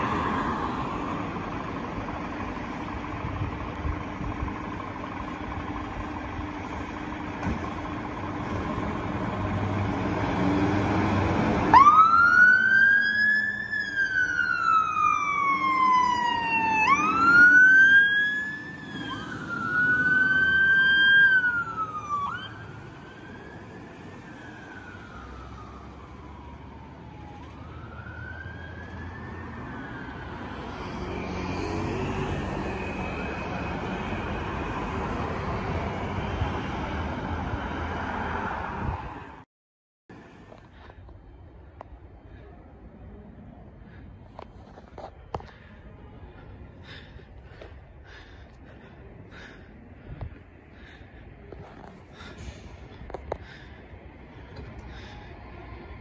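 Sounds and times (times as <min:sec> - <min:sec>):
diesel engine pulling away: 0:00.0 - 0:39.4, 0:40.1 - 0:56.0
siren wailing: 0:11.7 - 0:35.0.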